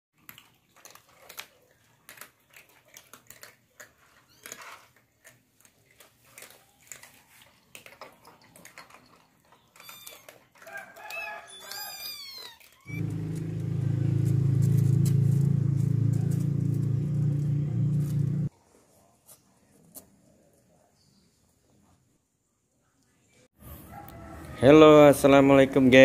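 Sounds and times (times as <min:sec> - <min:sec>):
cats crunching dry kibble: 0:00.2 - 0:13.6.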